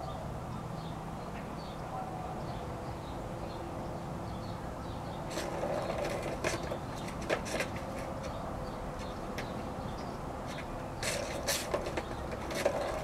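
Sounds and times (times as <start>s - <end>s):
kittens scuffling on grass: 10.4s - 13.0s.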